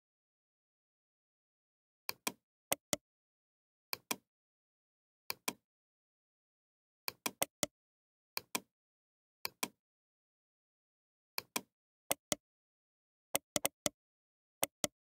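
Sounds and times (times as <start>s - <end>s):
computer mouse button clicking: 13.4s - 14.0s.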